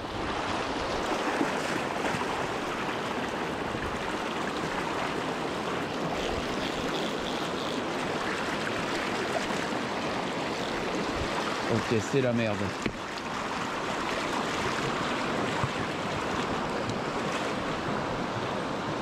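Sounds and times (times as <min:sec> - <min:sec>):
river current rushing: 0:00.0 - 0:19.0.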